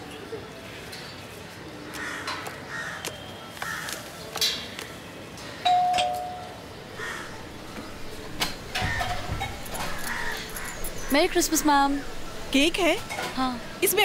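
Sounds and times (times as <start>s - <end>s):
doorbell ringing: 5.6s - 6.6s.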